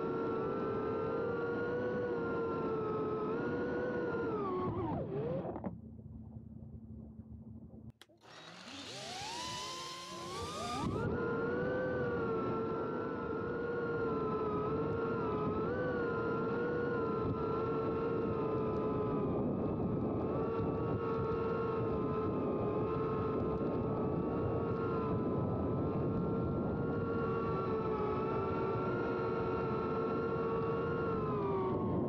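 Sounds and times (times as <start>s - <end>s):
drone motors whining: 3.4s - 5.7s, 8.0s - 12.6s.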